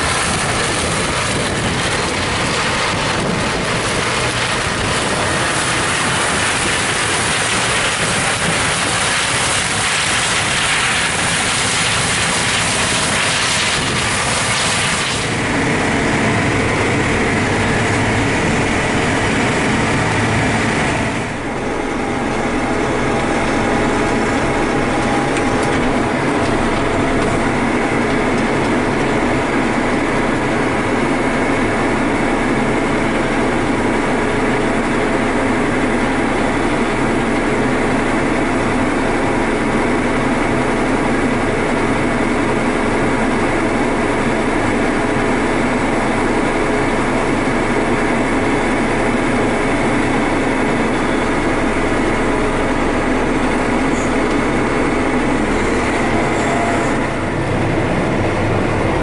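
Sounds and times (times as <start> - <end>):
tractor engine drone from cab: 0.0 - 59.0.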